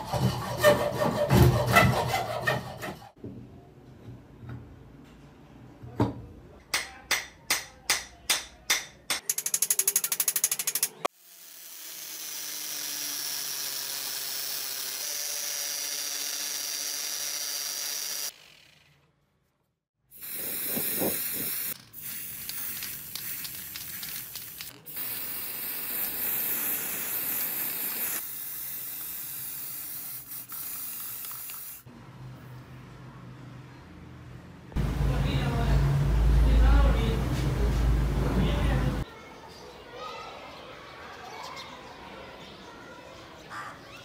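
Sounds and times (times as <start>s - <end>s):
angle grinder buffing steel: 9.4s - 18.9s
aerosol can spraying: 20.2s - 31.9s.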